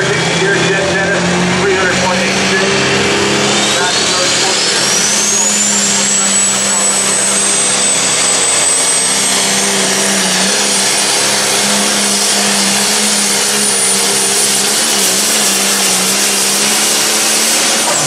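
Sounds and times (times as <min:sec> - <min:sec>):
diesel tractor engine at full throttle: 0:00.0 - 0:18.0
high turbo whistle: 0:02.8 - 0:18.0.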